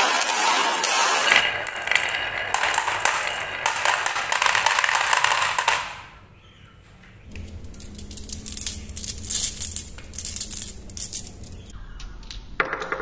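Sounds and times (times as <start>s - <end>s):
glass marbles clattering: 1.3s - 6.2s, 7.4s - 11.7s.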